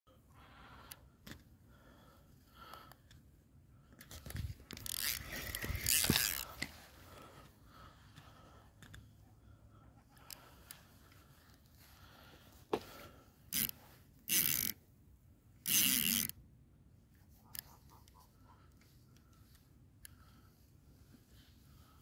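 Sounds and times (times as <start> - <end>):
fishing reel drag buzzing: 4.7 - 6.7, 13.5 - 14.8, 15.6 - 16.4.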